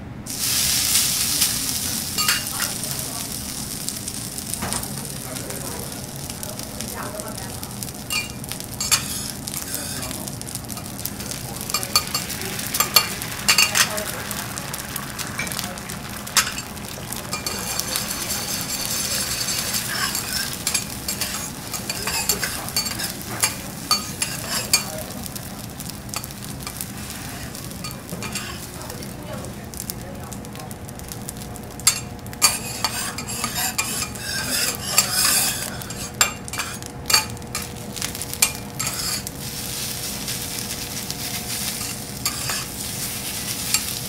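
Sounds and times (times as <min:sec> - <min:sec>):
food sizzling on a griddle: 0:00.0 - 0:44.0
metal spatulas tapping and scraping: 0:02.2 - 0:02.7, 0:08.1 - 0:10.2, 0:11.6 - 0:13.9, 0:16.4 - 0:16.7, 0:17.3 - 0:24.9, 0:27.8 - 0:28.6, 0:31.8 - 0:37.7, 0:38.4 - 0:39.3, 0:41.7 - 0:42.7.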